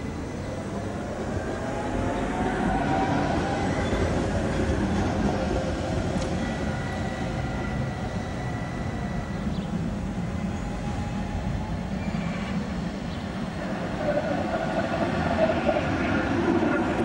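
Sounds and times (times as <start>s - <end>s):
tram wheels rumbling on rails: 0.0s - 17.0s
faint steady high tone: 6.2s - 13.4s.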